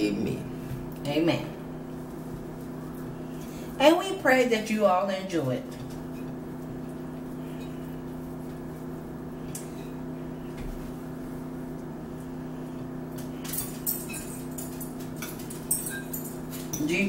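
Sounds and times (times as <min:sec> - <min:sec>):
forks clicking on plates: 0:13.2 - 0:17.0.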